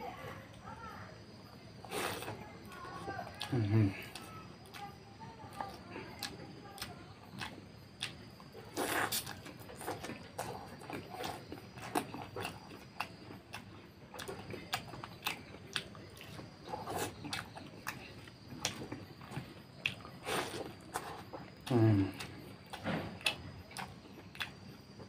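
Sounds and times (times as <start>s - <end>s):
man chewing and biting: 6.2s - 25.0s.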